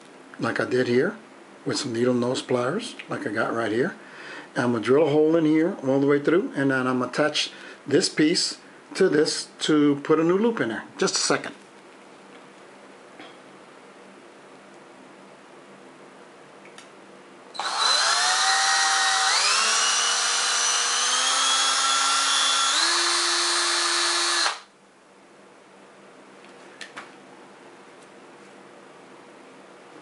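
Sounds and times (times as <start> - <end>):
power drill whining: 17.6 - 24.7.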